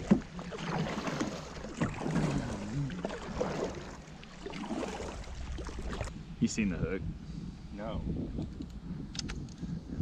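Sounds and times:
kayak paddle splashing in water: 0:00.0 - 0:06.1.

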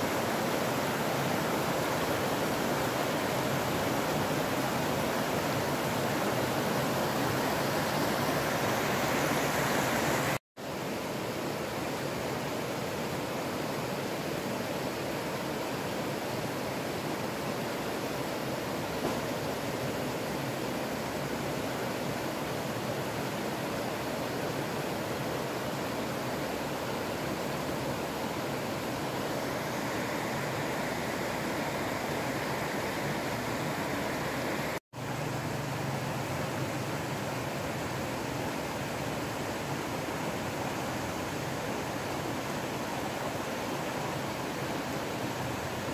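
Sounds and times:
river rushing over stones: 0:00.0 - 0:45.9.

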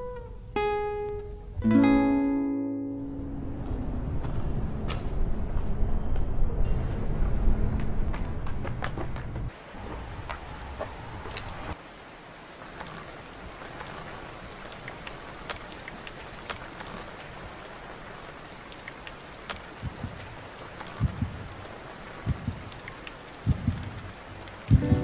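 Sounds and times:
rain on pavement: 0:08.1 - 0:25.0
low thuds: 0:19.7 - 0:21.6, 0:22.2 - 0:22.8, 0:23.4 - 0:25.0.

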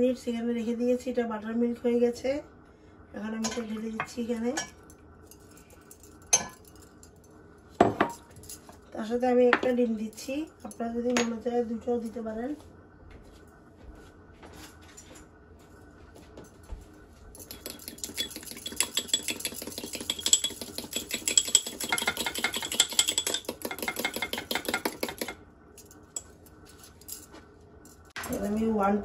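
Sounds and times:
utensil beating egg in ramekin: 0:17.4 - 0:25.4.

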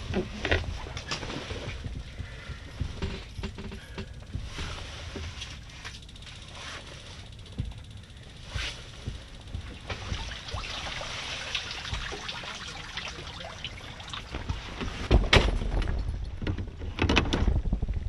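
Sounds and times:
nylon fabric rustling: 0:00.0 - 0:02.2, 0:08.4 - 0:13.0
low rumble on microphone: 0:00.0 - 0:18.0.

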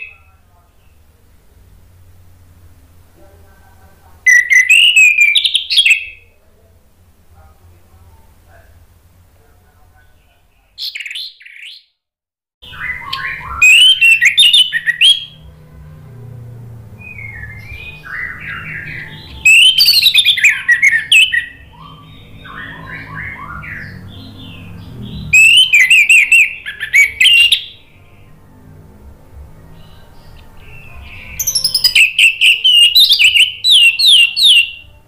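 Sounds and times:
thrush singing: 0:12.6 - 0:35.0.

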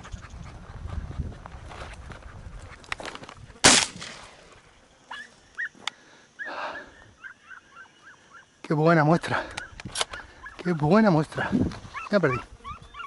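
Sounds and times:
footsteps through dry scrub: 0:00.0 - 0:05.9, 0:09.4 - 0:13.0.

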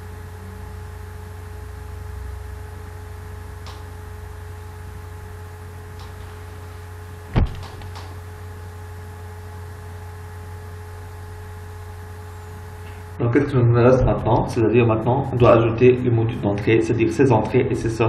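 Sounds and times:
electrical hum and hiss: 0:00.0 - 0:18.0
loud thump: 0:07.3 - 0:07.9.

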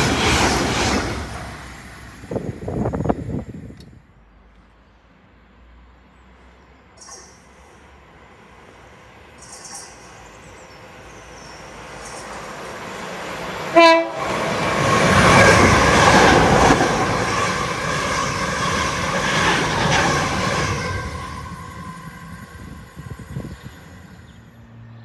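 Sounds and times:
train wheels rushing past: 0:00.0 - 0:03.8, 0:07.0 - 0:24.9
train horn blast: 0:13.7 - 0:14.4.

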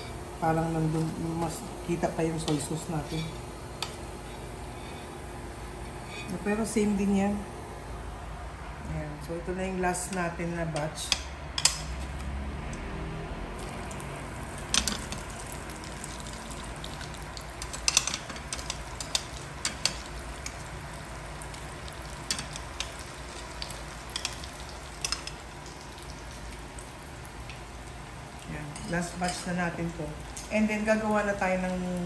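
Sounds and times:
oil sizzling in deep-frying: 0:13.6 - 0:32.0.

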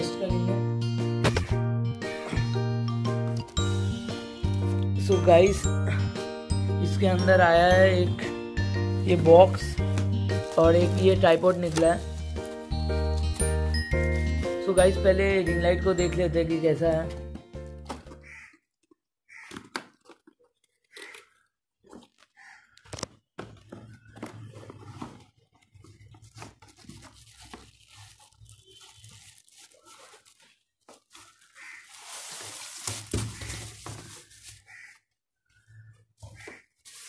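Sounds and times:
plastic wrapping crinkling: 0:10.0 - 0:14.4, 0:19.9 - 0:35.0, 0:36.8 - 0:37.0.

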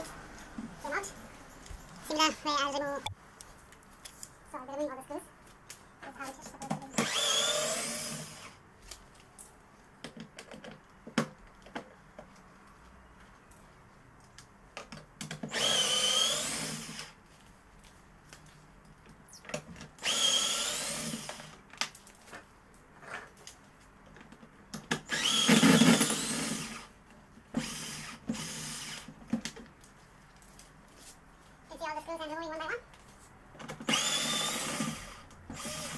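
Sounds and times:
drill-driver motor whine: 0:06.9 - 0:08.6, 0:15.5 - 0:17.2, 0:20.0 - 0:21.6, 0:25.1 - 0:26.9, 0:27.6 - 0:29.1, 0:33.8 - 0:35.9.

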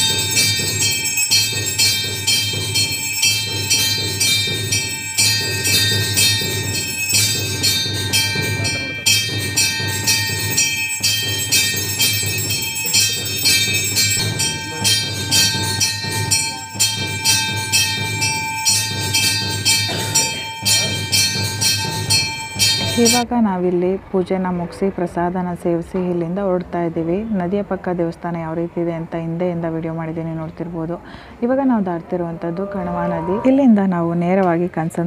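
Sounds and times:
temple bells ringing: 0:00.0 - 0:23.3.

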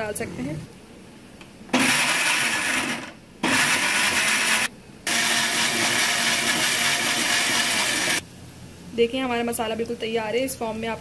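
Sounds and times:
electric blender grinding: 0:01.7 - 0:08.2.

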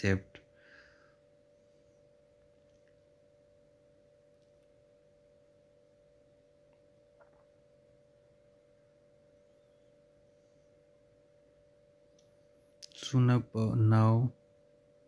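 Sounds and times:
faint steady whine: 0:00.0 - 0:15.0
low hum: 0:00.0 - 0:15.0.

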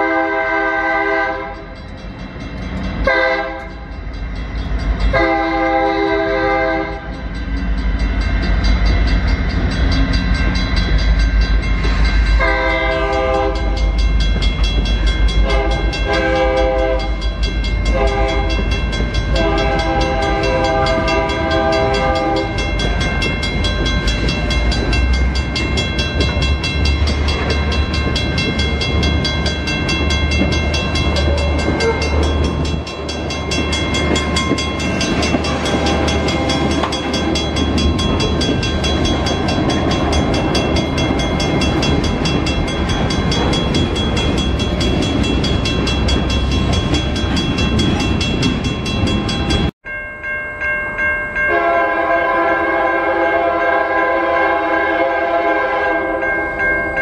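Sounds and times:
train air horn blasts: 0:00.0 - 0:01.7, 0:03.0 - 0:03.8, 0:05.1 - 0:07.1, 0:12.4 - 0:13.8, 0:15.4 - 0:17.2, 0:17.9 - 0:22.6, 0:31.1 - 0:32.3, 0:51.5 - 0:56.2
diesel locomotive rumble: 0:00.0 - 0:49.8
train wheel noise: 0:00.0 - 0:49.8.

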